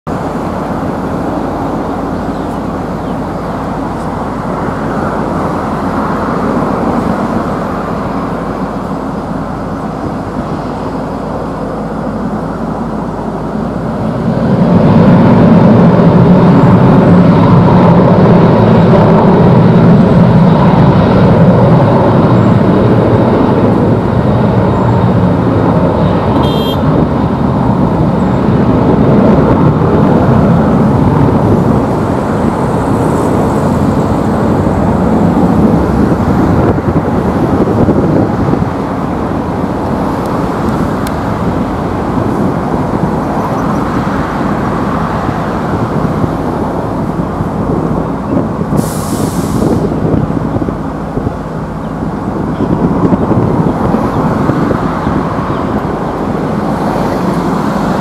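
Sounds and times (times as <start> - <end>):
jet engines at takeoff: 0.1 - 58.0.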